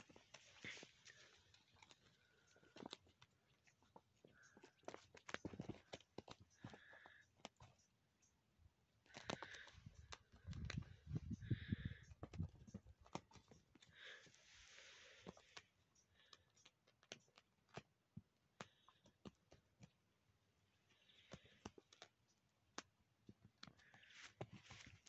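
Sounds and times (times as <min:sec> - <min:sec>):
kitten claws clicking on concrete: 0:15.4 - 0:20.2.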